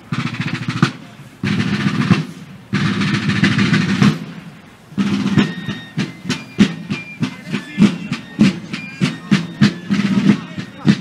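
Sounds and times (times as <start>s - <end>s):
drum roll: 0.0s - 11.0s
marching drum beats: 0.0s - 11.0s
high fife melody: 5.0s - 11.0s.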